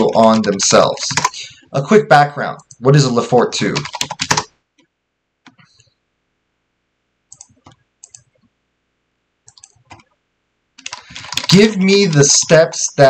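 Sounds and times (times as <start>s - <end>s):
mouse and keyboard clicks: 7.3s - 8.4s, 9.5s - 10.1s.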